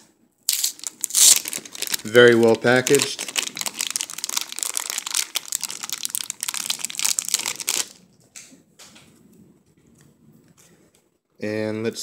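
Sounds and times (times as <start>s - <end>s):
plastic wrap crinkling: 0.5s - 8.1s.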